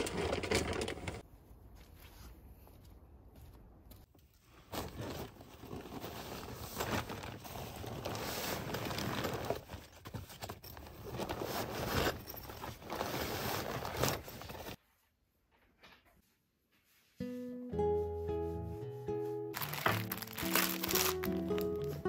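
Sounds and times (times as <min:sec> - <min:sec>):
tent fabric rustling: 0:04.4 - 0:14.8, 0:19.5 - 0:22.0.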